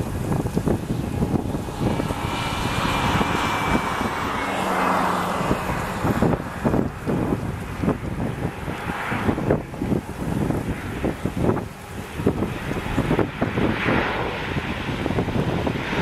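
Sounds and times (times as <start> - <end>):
jet engine rush with whine: 0.0 - 16.0
wind buffeting microphone: 0.0 - 16.0.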